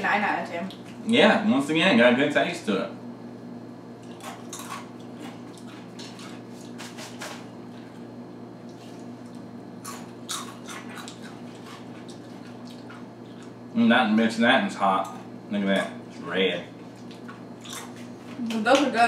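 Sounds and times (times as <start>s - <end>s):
chips being chewed: 4.0s - 13.6s, 16.9s - 18.4s.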